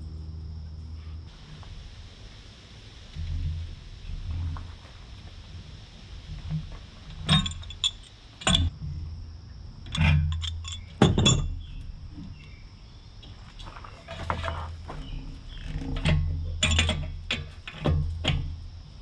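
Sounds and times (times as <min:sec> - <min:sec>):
wrench clinking on brass fittings: 0:07.1 - 0:08.7, 0:09.9 - 0:11.7, 0:16.0 - 0:18.4.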